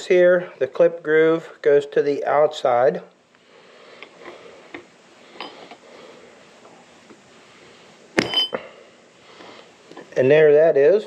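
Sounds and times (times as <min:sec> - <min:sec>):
ringing metallic clink: 0:08.2 - 0:08.6.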